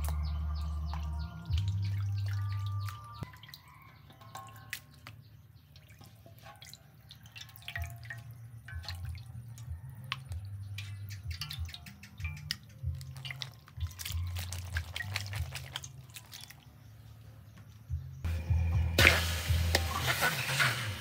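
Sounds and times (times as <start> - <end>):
batter dripping in a wok: 7.1 - 16.7.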